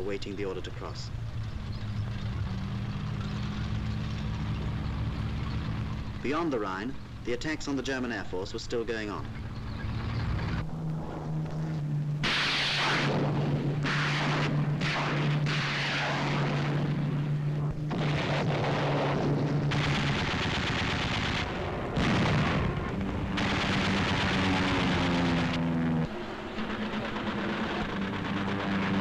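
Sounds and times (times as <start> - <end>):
aircraft engines droning: 0.0 - 29.0
gunfire bursts: 12.2 - 29.0.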